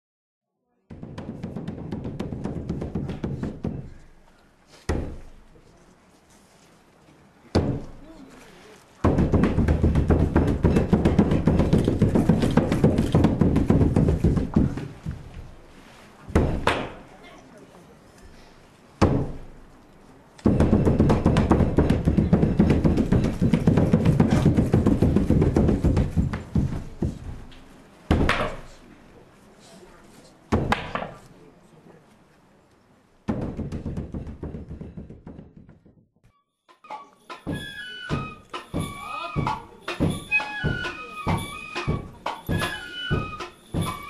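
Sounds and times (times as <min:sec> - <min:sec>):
drum strikes: 0:00.9 - 0:03.9, 0:09.0 - 0:14.8, 0:20.5 - 0:27.2, 0:36.8 - 0:44.0.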